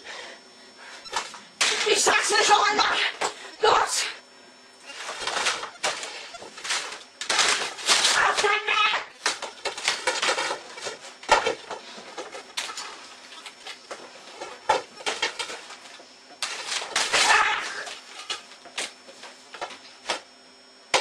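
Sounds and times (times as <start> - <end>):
person yelling shrilly: 1.7 - 4.2, 8.0 - 9.2, 17.2 - 17.9.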